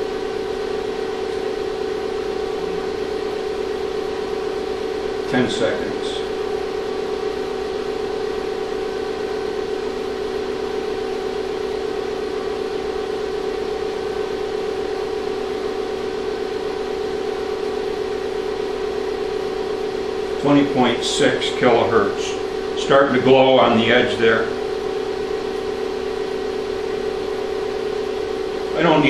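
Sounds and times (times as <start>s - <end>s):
induction heater humming: 0.0s - 29.0s.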